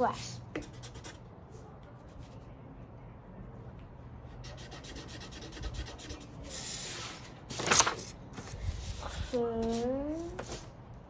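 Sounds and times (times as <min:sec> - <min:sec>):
marker scribbling on paper: 0:00.0 - 0:02.5, 0:04.3 - 0:07.2, 0:08.6 - 0:10.7
paper rustling and sliding on table: 0:06.5 - 0:10.7.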